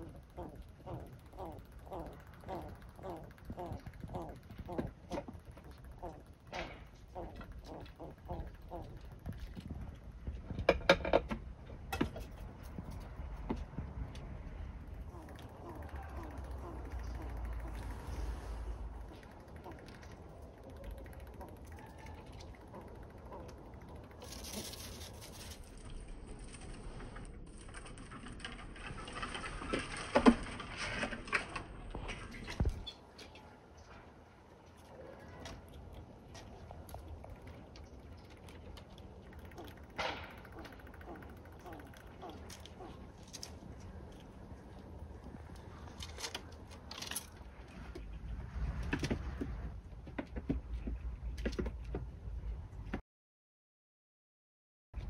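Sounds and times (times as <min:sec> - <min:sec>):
squirrel claws scratching on branches: 0:15.1 - 0:27.0.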